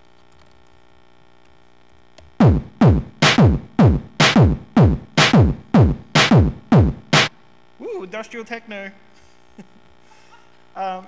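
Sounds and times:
heavy electronic drum thuds: 2.4s - 7.3s.

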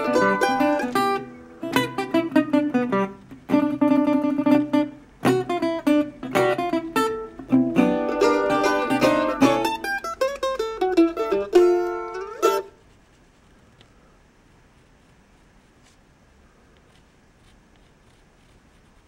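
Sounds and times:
plucked string instrument melody: 0.0s - 12.8s.

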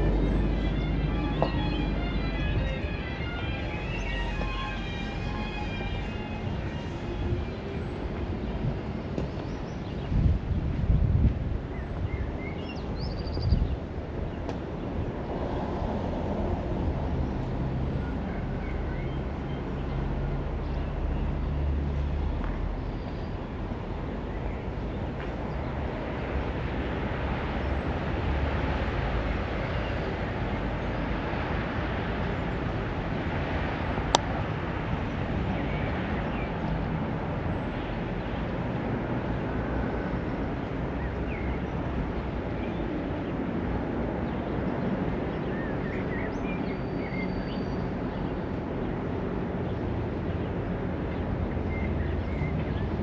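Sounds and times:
vehicle engine rumbling: 0.0s - 9.5s
tyre and road noise: 0.0s - 53.0s.

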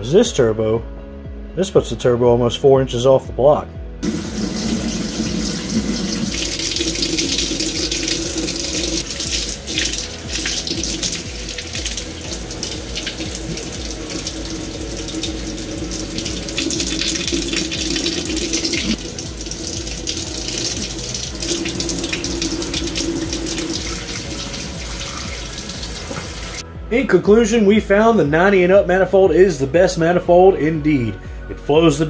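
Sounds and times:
tap water splashing into sink: 4.0s - 26.6s.

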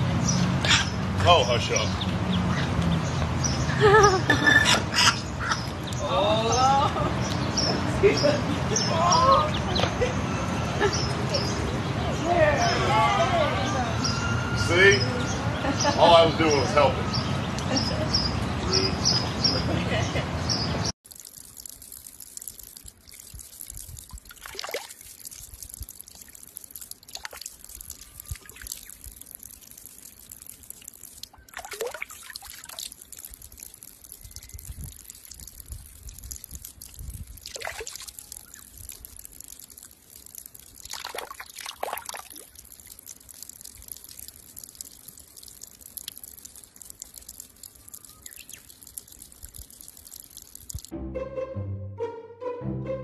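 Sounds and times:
water trickling onto stone: 0.2s - 12.8s, 15.6s - 19.7s, 20.5s - 50.9s
water gurgles: 21.0s - 50.9s.

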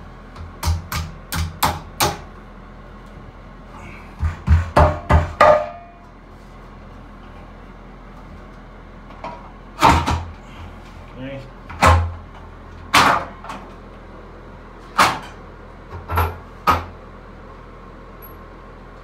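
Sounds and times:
hand pounding metal rail: 4.2s - 5.9s.

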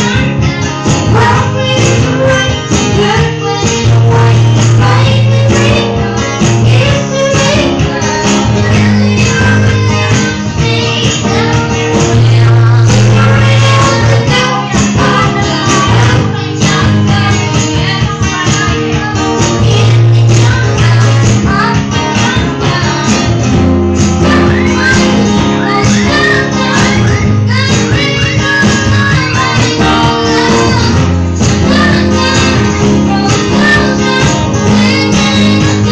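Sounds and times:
acoustic guitar strumming: 0.0s - 35.9s
boy singing: 0.0s - 35.9s.

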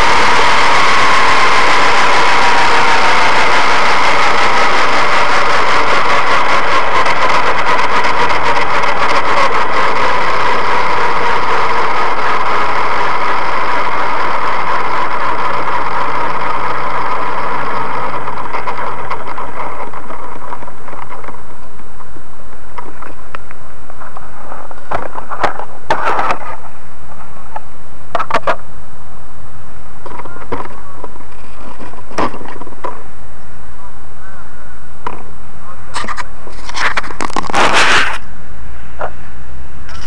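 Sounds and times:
rc helicopter motor whine: 0.0s - 23.3s.

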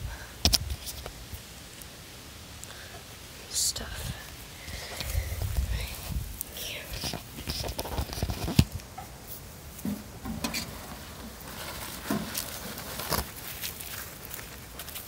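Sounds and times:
footsteps in dry leaves: 9.2s - 15.0s.

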